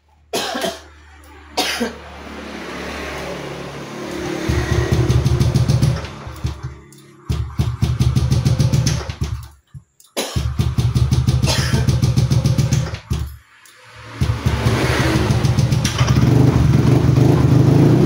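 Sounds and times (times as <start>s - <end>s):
motorcycle engine running unevenly: 3.9s - 9.4s, 10.4s - 13.1s, 14.2s - 18.0s.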